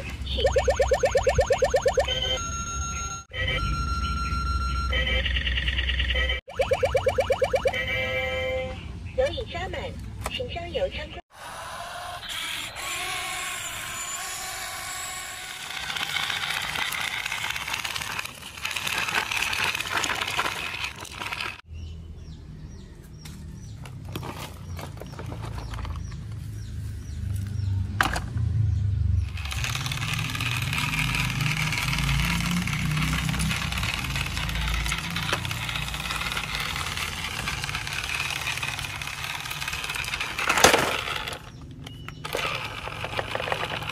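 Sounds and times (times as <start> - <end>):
toy electric motors whirring: 0.4 - 2.4, 6.5 - 8.0, 11.4 - 21.7, 29.2 - 43.9.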